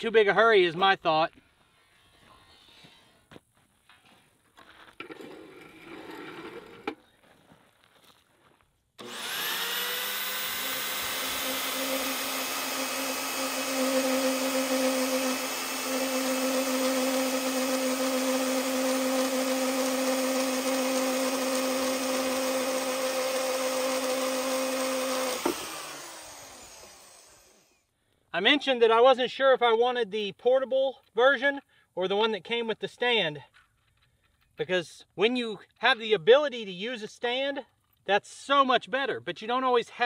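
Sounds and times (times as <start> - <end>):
band saw cutting steel: 9.0 - 27.8.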